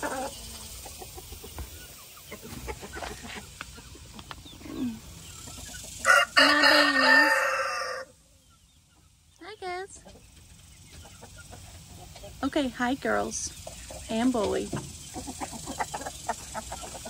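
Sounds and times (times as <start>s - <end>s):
chickens clucking: 0.0s - 17.0s
rooster crowing: 6.0s - 8.2s.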